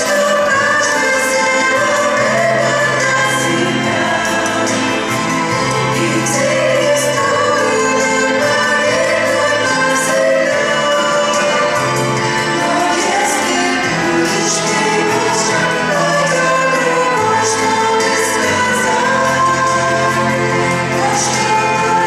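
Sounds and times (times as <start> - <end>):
women singing together: 0.0 - 22.0.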